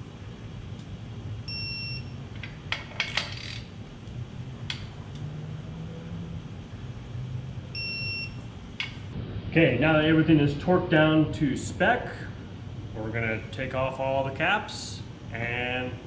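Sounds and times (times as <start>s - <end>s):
low shop hum: 0.0s - 16.0s
torque wrench beep: 1.5s - 2.2s, 7.8s - 8.4s.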